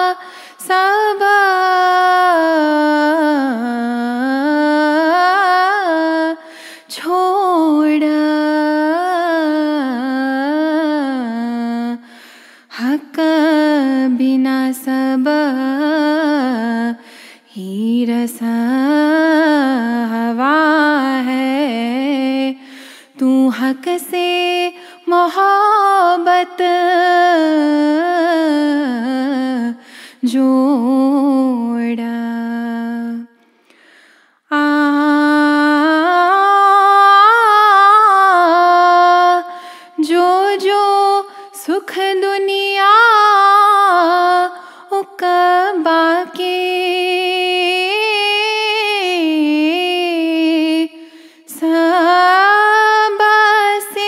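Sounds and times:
woman singing a hymn unaccompanied: 0.0 - 12.0, 12.8 - 22.6, 23.2 - 33.3, 34.5 - 54.0
singer breathing: 0.2 - 0.6, 6.4 - 6.9, 12.0 - 12.7, 17.0 - 17.5, 22.6 - 23.2, 29.8 - 30.2, 33.4 - 34.5, 39.5 - 40.0, 44.6 - 44.9, 51.0 - 51.5.

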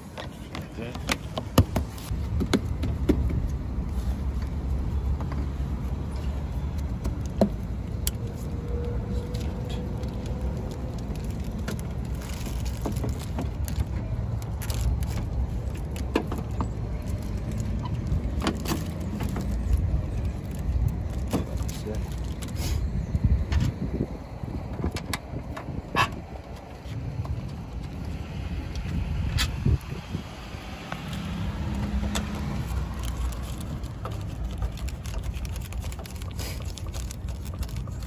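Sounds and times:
plastic bag rustling: 9.1 - 16.1, 32.3 - 38.0.

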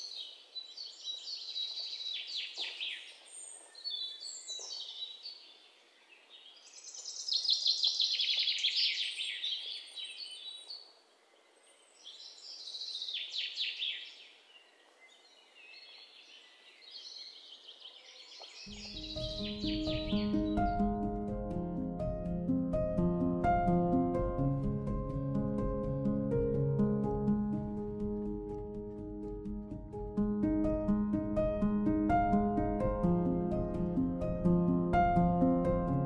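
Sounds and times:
songbirds chirping and trilling: 0.0 - 21.4.

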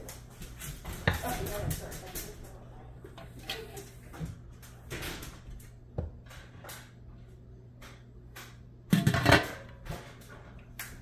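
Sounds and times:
metal lid clattering on pot: 8.9 - 9.8.

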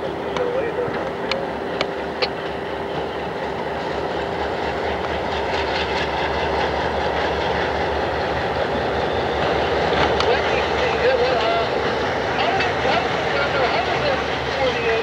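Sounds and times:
freight train rumbling past: 0.0 - 15.0.

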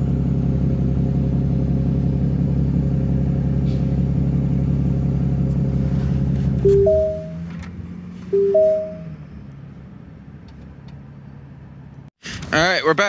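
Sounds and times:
vehicle engine idling: 0.0 - 10.5
sustained music notes: 6.7 - 7.4, 8.4 - 9.1.

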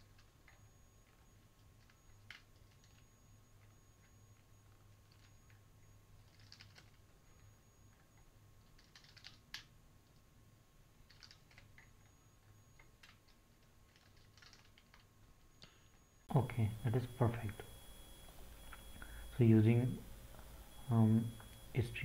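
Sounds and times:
faint computer keyboard typing: 0.0 - 10.3, 11.0 - 16.0.

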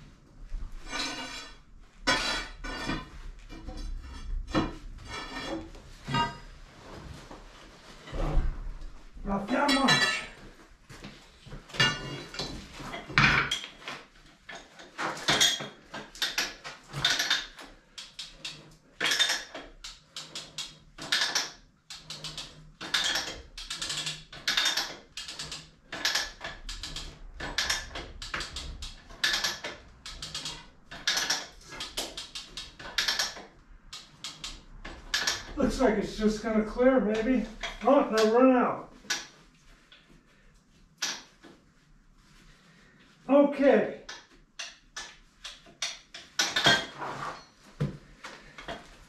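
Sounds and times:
ratchet clicks and chain clinks: 15.3 - 35.6.

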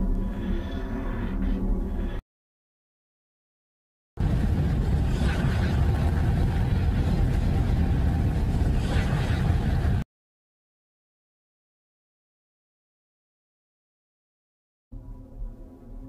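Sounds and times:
dense rumbling space ambience: 0.0 - 2.2, 4.2 - 10.0.

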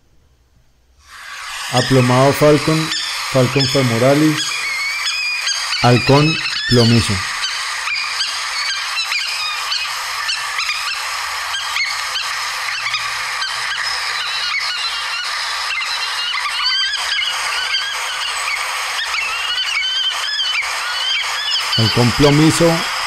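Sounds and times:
recording hiss: 0.0 - 9.0, 20.2 - 23.0
falcon calling: 1.0 - 23.0.

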